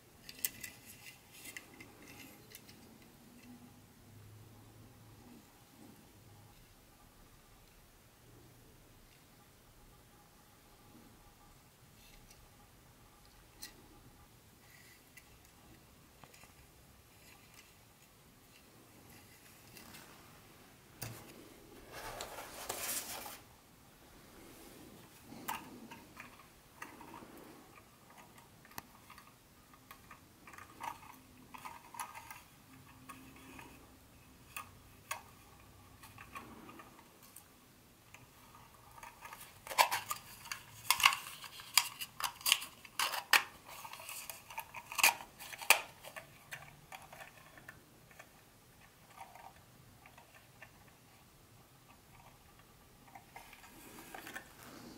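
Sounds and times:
plastic parts clicking together: 38.9 - 50.8.

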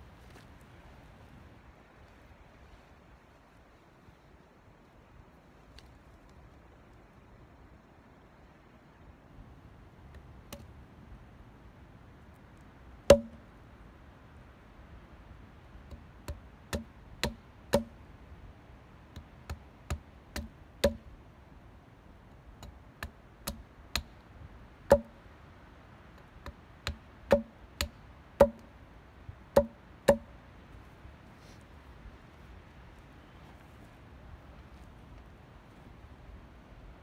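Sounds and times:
hatchet chopping wood: 13.1 - 13.4, 15.9 - 18.0, 19.2 - 21.0, 22.6 - 24.2, 24.9 - 25.2, 26.4 - 28.7, 29.6 - 30.3.

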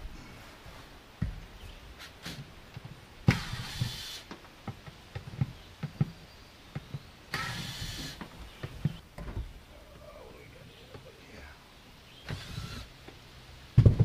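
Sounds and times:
knocks and clunks: 1.2 - 1.6, 2.3 - 9.6, 13.8 - 14.0
short noisy bursts: 3.2 - 4.3, 7.3 - 8.2, 12.2 - 13.0.

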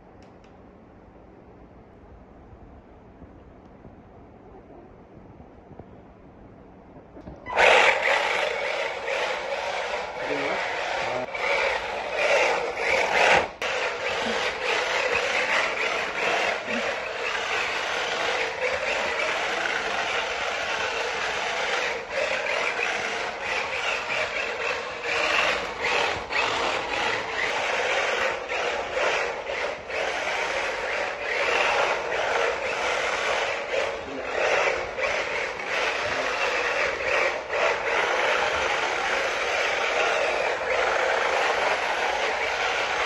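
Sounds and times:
toy car tyres scraping on floor: 7.4 - 43.0.

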